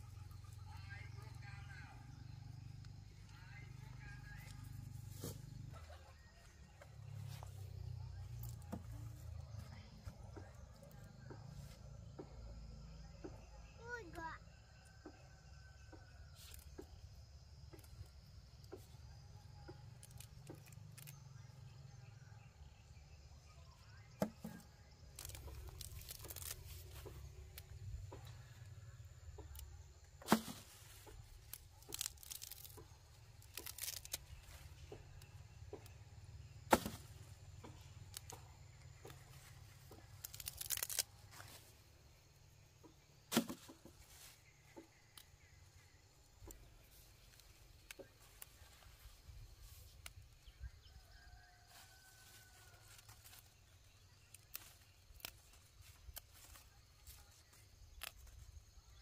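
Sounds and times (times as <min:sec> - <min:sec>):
rustling and tearing of leaves: 0:19.5 - 0:21.5, 0:24.2 - 0:28.7, 0:29.3 - 0:36.0, 0:36.6 - 0:41.9, 0:46.4 - 0:59.0
sharp snaps of roots: 0:19.6 - 0:22.0, 0:23.9 - 0:28.3, 0:29.3 - 0:41.7, 0:42.8 - 0:46.6, 0:52.8 - 0:59.0
faint crackles: 0:24.4 - 0:36.0, 0:36.7 - 0:41.9.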